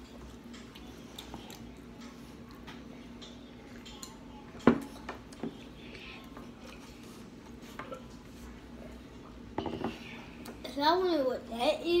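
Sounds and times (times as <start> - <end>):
cup knocking on a table: 9.6 - 10.0.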